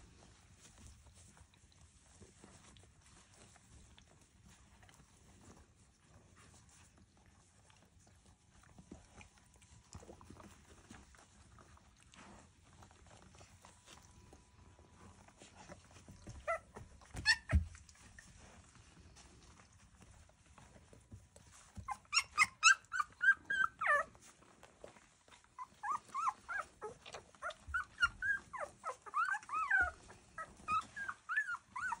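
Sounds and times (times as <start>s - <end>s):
faint rustling of puppies: 0.0s - 32.0s
puppies squeaking and whimpering: 15.6s - 18.3s, 21.5s - 24.6s, 25.3s - 32.0s.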